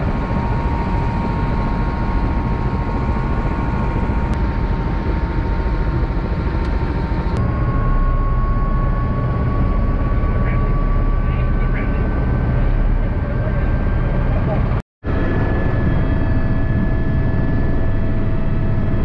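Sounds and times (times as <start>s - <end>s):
helicopter engine and rotor: 0.0s - 19.0s.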